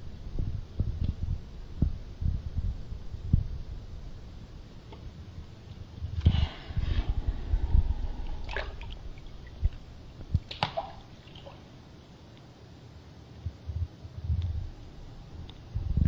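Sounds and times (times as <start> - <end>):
water sloshing and dripping: 6.2 - 11.8.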